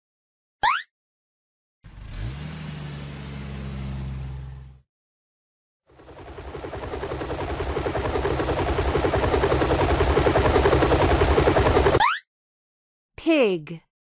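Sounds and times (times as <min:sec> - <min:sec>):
helicopter rotor chop: 0:05.9 - 0:12.0.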